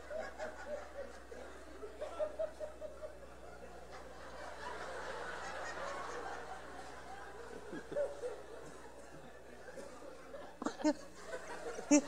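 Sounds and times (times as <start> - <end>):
audience laughter: 0.0 - 12.0
person laughing in stuttering pulses: 7.5 - 9.0, 10.6 - 12.0.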